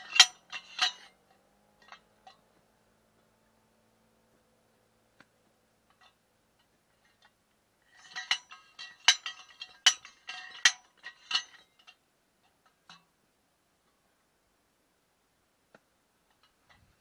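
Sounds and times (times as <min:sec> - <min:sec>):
sliding hammer ringing metal clanks: 0:00.0 - 0:01.2, 0:07.9 - 0:12.0.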